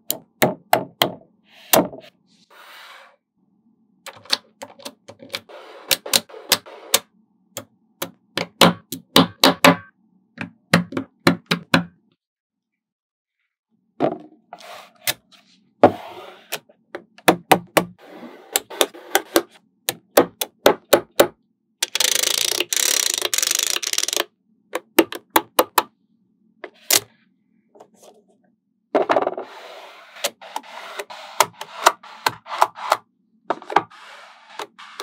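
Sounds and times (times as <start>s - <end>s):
magnetic balls clicking: 21.8s - 24.3s.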